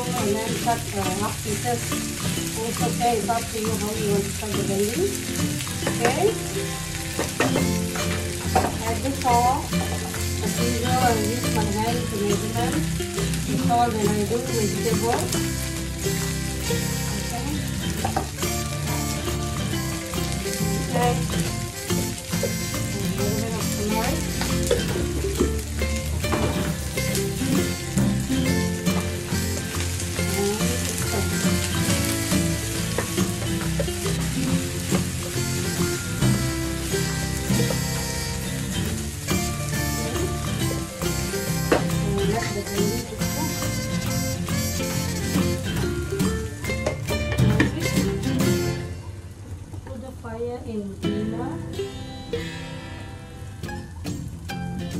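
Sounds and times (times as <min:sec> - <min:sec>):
background music: 0:00.0 - 0:49.4, 0:51.0 - 0:54.9
okra sizzling in a pan: 0:00.0 - 0:54.9
wooden spatula knocking pan: 0:07.1 - 0:09.0.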